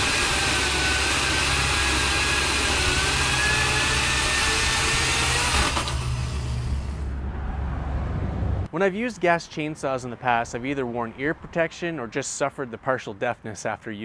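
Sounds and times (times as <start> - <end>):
chainsaw cutting through log: 0.0 - 6.7.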